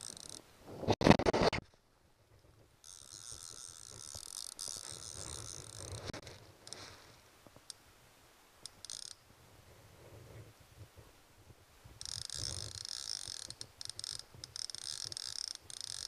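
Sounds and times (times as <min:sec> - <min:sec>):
fly reel drag buzzing: 0:00.0 - 0:00.4, 0:02.8 - 0:06.9, 0:08.6 - 0:09.2, 0:12.0 - 0:16.0.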